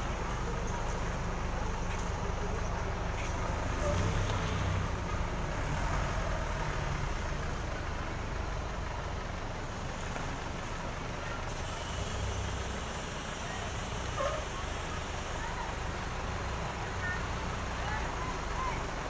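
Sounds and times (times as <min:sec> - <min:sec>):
bus diesel engine idling: 0:00.0 - 0:19.0.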